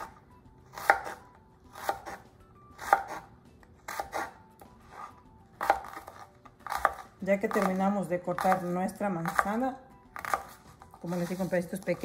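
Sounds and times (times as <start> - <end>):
knife chopping on wooden board: 0.7 - 2.2, 2.8 - 3.3, 3.9 - 9.6, 10.2 - 10.6.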